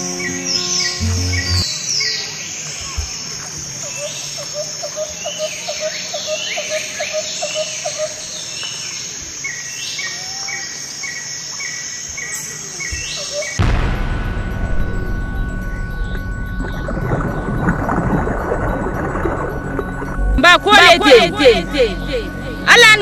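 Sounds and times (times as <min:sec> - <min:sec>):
louder abrupt sound: 0:13.6 - 0:19.3.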